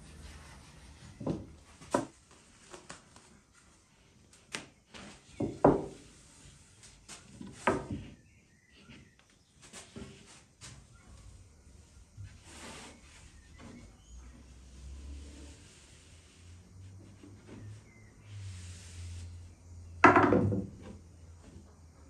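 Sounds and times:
knocks and soft thumps on board: 20.0 - 21.0.

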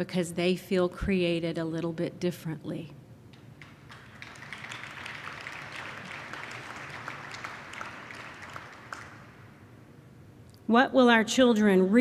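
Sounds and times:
audience applauding: 3.6 - 9.6.

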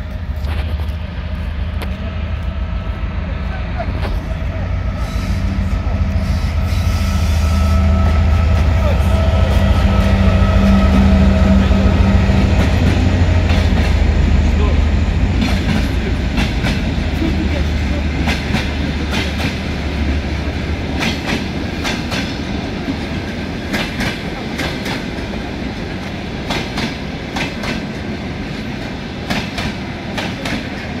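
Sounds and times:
heavy low rumble: 0.0 - 21.0
train wheels clicking over rail joints: 12.3 - 14.1, 15.2 - 17.4, 18.0 - 31.0.

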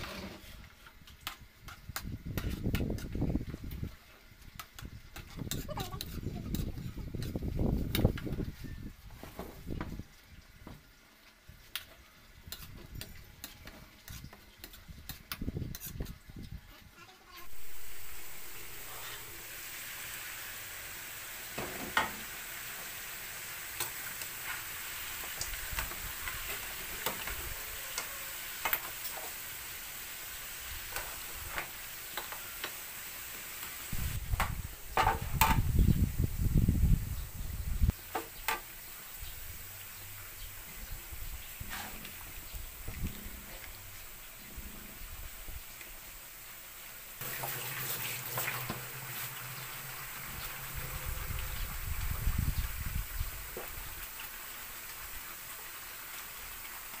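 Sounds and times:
ladle scraping in wok: 0.0 - 3.2, 17.4 - 34.0, 41.4 - 45.0, 47.2 - 51.8
crabs sizzling in wok: 0.0 - 57.0.

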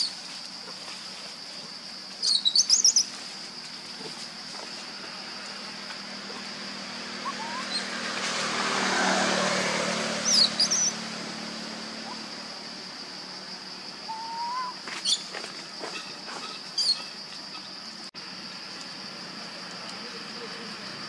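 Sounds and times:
high insect drone: 0.0 - 21.0
birds chirping: 6.2 - 8.2, 10.2 - 11.1
rising bird whistle: 7.2 - 7.9, 10.2 - 11.0, 14.1 - 15.3.

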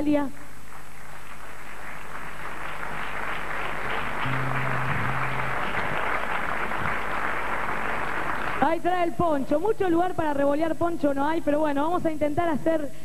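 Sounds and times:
audience applauding: 0.8 - 8.6
low held tone: 4.2 - 6.1.

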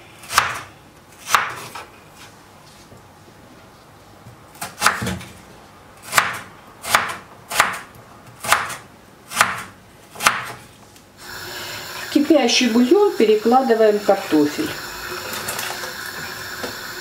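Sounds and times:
knife chopping on wooden board: 0.2 - 1.8, 4.6 - 5.3, 6.0 - 10.6.

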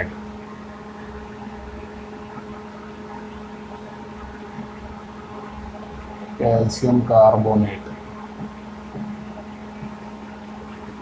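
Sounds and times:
constant hiss: 0.0 - 11.0
low hum: 0.0 - 11.0.

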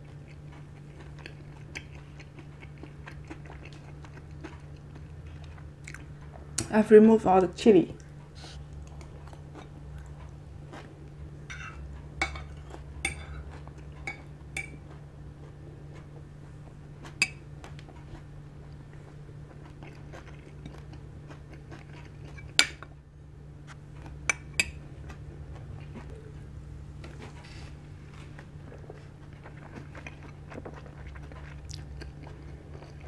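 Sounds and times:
soft chewing: 0.0 - 6.7, 8.0 - 33.0
steady low hum: 0.0 - 33.0
cutlery clinking on plates: 11.5 - 13.4.

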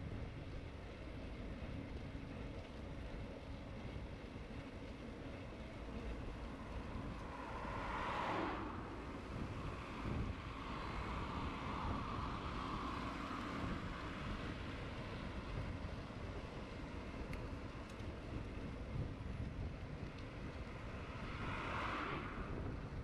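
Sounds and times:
wind rumbling on microphone: 0.0 - 23.0
road traffic passing: 4.4 - 23.0
car passing: 5.5 - 18.4, 19.9 - 23.0.

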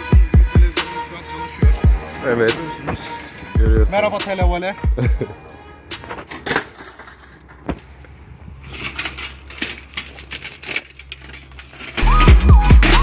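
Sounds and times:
loud hip-hop music: 0.0 - 6.1, 12.0 - 13.0.

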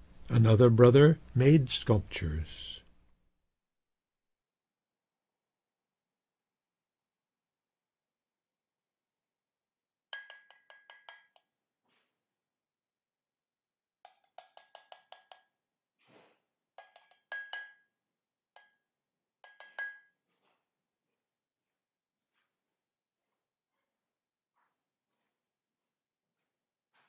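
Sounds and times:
hammer tapping a chisel: 10.2 - 11.6, 14.0 - 15.6, 16.8 - 18.0, 18.6 - 20.6.

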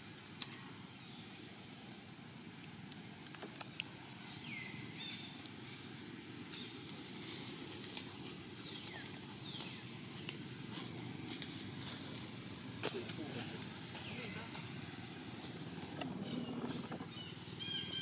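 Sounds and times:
high animal calls sliding down: 15.6 - 17.2.

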